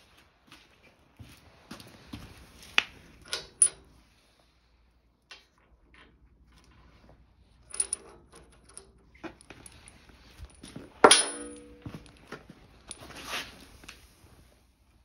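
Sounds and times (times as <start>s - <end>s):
loud ringing metallic clank: 11.0s - 11.9s
metal objects knocking and clinking: 11.0s - 12.1s.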